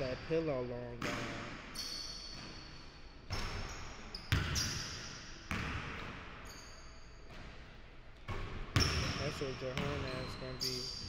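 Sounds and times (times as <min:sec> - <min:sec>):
basketball striking rim: 0:00.9 - 0:02.7, 0:03.3 - 0:06.4, 0:08.2 - 0:10.2
basketball bouncing on wooden floor: 0:01.0 - 0:01.7, 0:03.3 - 0:06.4, 0:07.3 - 0:10.3.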